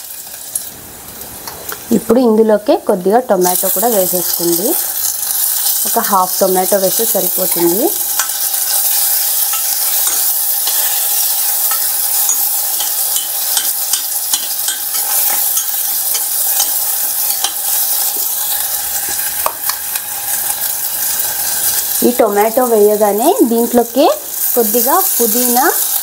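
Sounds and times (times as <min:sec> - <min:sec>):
food sizzling in a pan: 0:00.0 - 0:26.0
spoon scraping a steel pan: 0:08.1 - 0:21.8.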